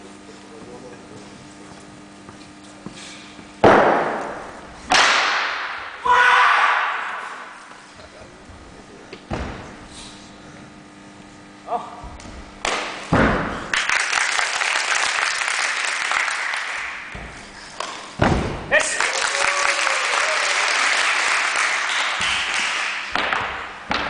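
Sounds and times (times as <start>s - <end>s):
person shouting: 6.0s - 7.0s
staff thuds on floor: 9.3s - 9.7s, 12.2s - 13.6s, 18.2s - 18.7s
audience applause: 13.7s - 17.1s, 18.8s - 23.1s.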